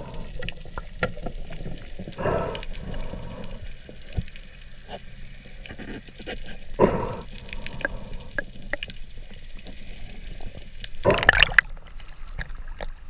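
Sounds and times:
water bubbling: 0.0s - 4.2s, 6.7s - 8.9s, 10.9s - 13.0s
underwater ambience: 0.0s - 13.0s.

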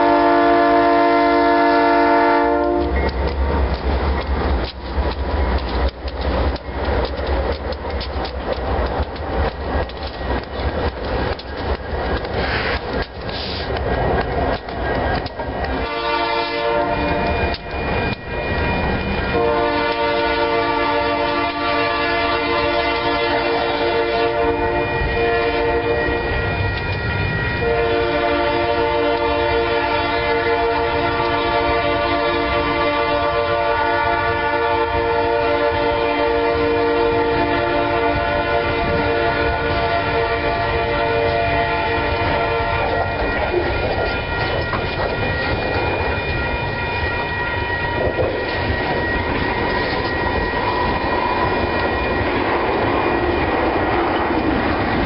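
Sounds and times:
locomotive horn: 0.0s - 3.2s, 15.7s - 17.6s, 19.2s - 45.9s
train wheels clattering on rails: 0.0s - 55.0s.

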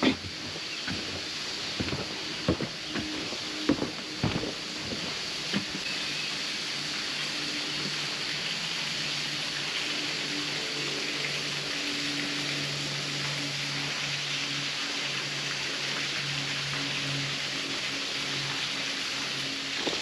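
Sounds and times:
outdoor background hiss: 0.0s - 15.5s.

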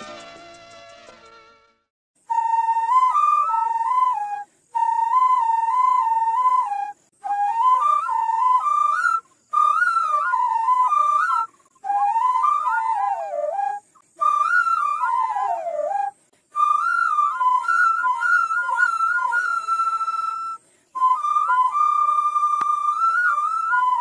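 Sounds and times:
bamboo flute melody: 0.0s - 24.0s.

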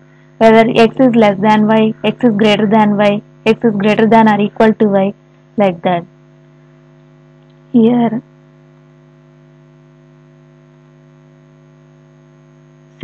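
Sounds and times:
electrical hum: 0.0s - 13.0s
person speaking word: 0.4s - 6.0s, 7.8s - 8.2s.

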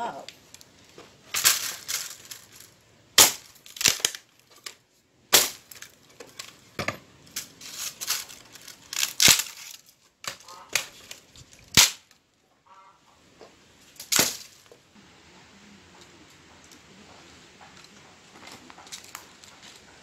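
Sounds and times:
wood splintering crackle: 0.3s - 6.7s, 7.3s - 12.2s, 13.9s - 14.8s
axe chopping branch: 3.2s - 4.2s, 5.3s - 5.9s, 11.7s - 12.1s, 14.0s - 14.6s.

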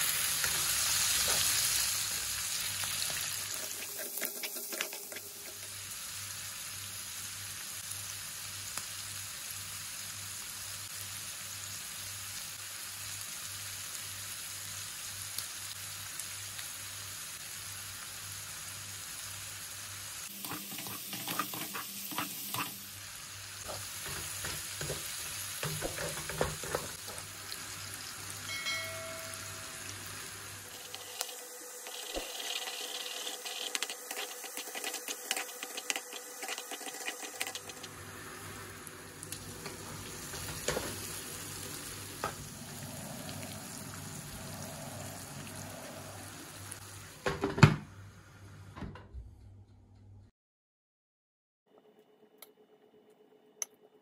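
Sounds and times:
food sizzling in a frying pan: 0.0s - 48.5s
wooden spatula scraping pan: 20.4s - 22.8s.

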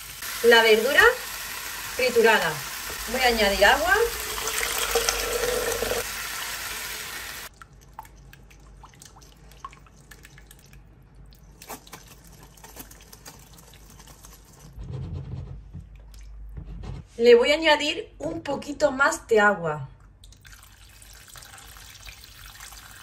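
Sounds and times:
water poured through a strainer: 4.1s - 6.0s, 20.4s - 23.0s.

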